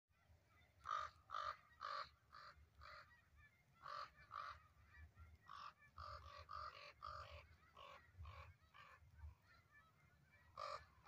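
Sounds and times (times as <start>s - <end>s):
crow cawing: 0.8s - 4.8s, 5.4s - 9.0s, 9.8s - 11.0s.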